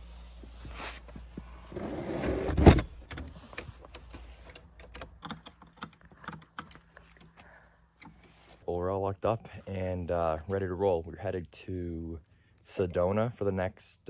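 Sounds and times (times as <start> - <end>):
lock clicks and knocks: 2.6 - 7.4.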